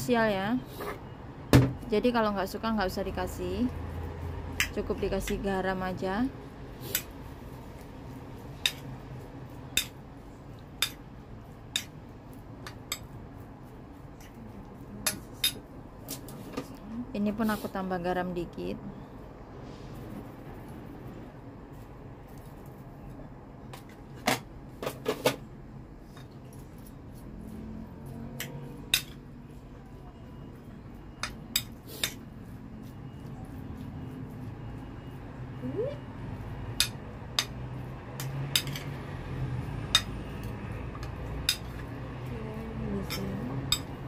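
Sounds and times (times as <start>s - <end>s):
metal spoon clinking porcelain bowl: 39.9s - 40.2s.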